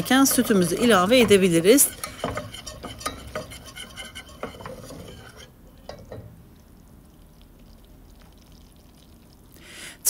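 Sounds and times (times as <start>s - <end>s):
utensil scraping and knocking pot: 0.0s - 6.4s.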